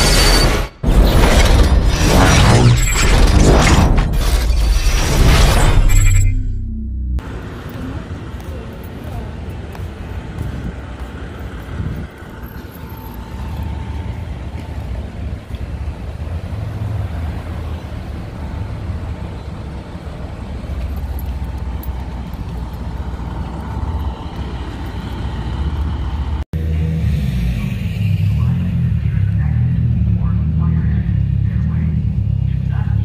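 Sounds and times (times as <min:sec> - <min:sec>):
idling vehicle engines rumbling: 0:07.2 - 0:33.0.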